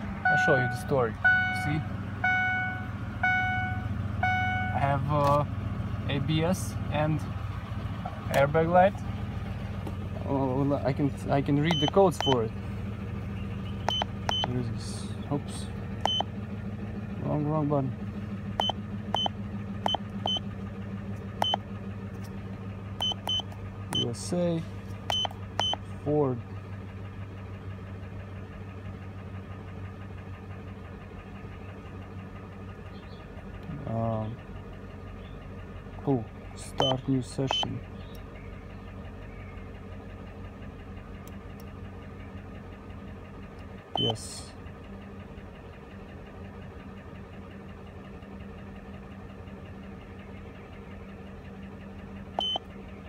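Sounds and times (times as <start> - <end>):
truck engine idling: 0.0 - 53.0
scanner beep: 0.2 - 4.8, 11.7 - 12.4, 13.9 - 14.6, 16.0 - 16.3, 18.6 - 20.4, 21.4 - 21.6, 23.0 - 24.2, 25.1 - 25.8, 36.8 - 37.7, 52.4 - 52.6.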